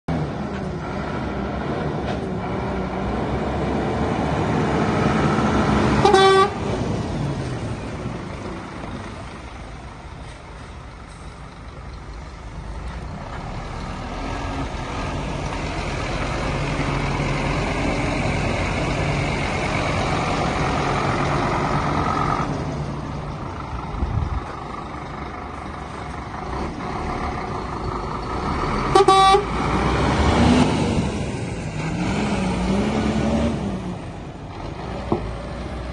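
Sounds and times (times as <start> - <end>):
diesel truck engine running: 0.1 - 35.9
truck horn toots: 6.0 - 6.7, 28.8 - 29.6.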